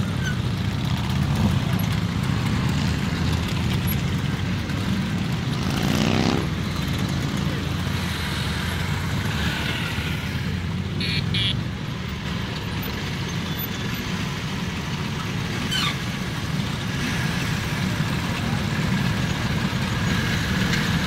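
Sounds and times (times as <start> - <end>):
scooter engines droning: 0.0 - 21.0
short horn beeps: 11.0 - 11.6.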